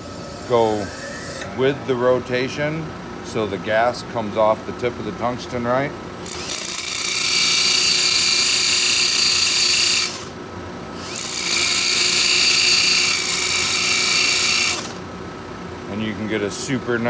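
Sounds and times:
high grinding whine: 0.0 - 3.5, 6.2 - 15.3
sander motor running: 6.2 - 10.3, 10.9 - 15.0.

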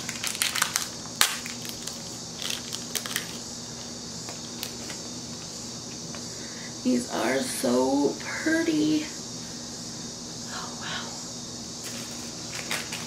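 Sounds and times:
plastic bag crinkling: 0.0 - 5.0, 11.9 - 13.0.

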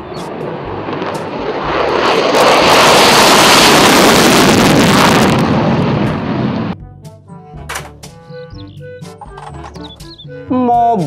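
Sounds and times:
fighter jet taking off: 0.0 - 6.8.

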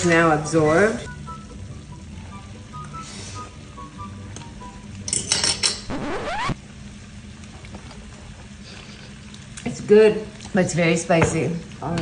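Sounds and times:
short rising tone: 5.9 - 6.6.

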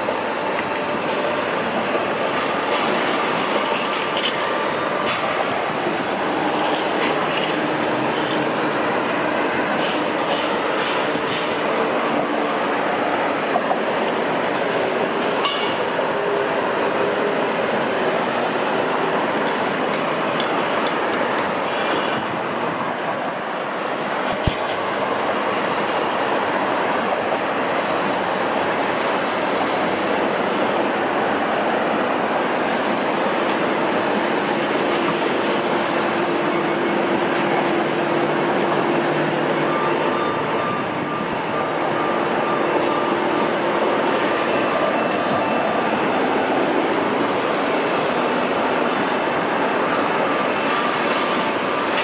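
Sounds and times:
construction site noise: 0.0 - 52.0.

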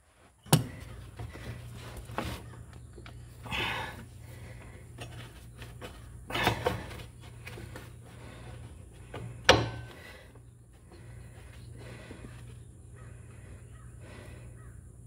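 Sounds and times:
steady low hum: 0.0 - 15.0
clunks and knocks of handling: 0.5 - 3.4, 4.6 - 10.4.

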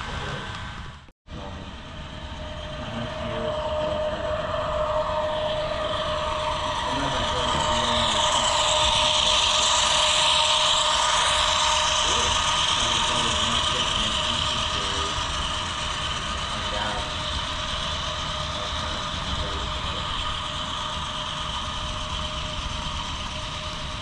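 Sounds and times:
model train wheels rattling on rails: 5.9 - 24.0.

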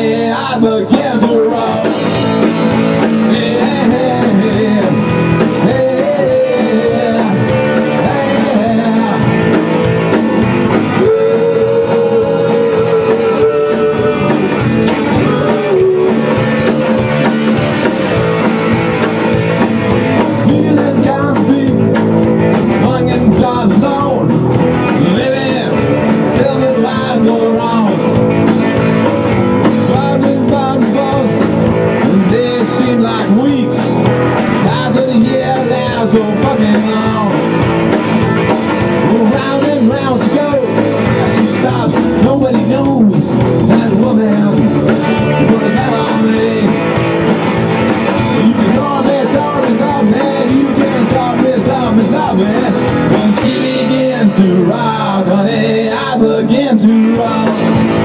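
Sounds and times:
drum kit: 0.0 - 58.0
electric guitars: 0.0 - 58.0.

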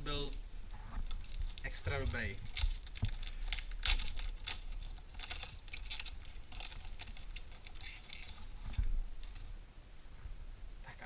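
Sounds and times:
foil wrapper tearing and crinkling: 1.0 - 9.5.

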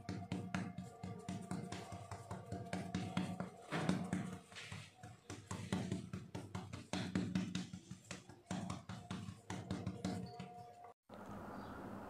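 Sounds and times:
soft background music: 0.0 - 6.9.

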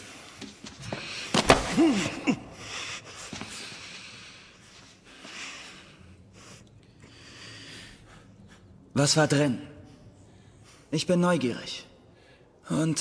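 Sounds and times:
heavy breathing through nose: 2.6 - 8.9.

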